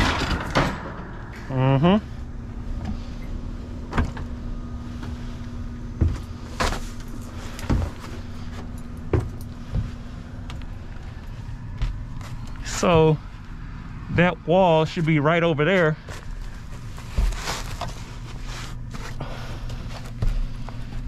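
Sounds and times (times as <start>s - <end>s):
steady low hum: 0.0s - 21.0s
rustling: 16.0s - 21.0s.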